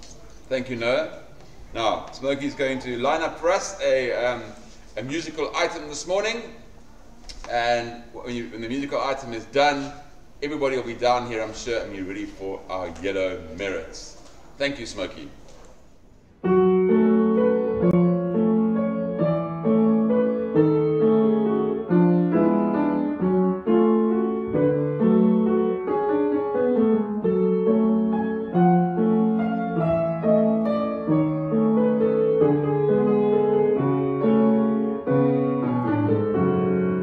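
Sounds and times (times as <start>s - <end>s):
solo piano melody: 16.4s - 37.0s.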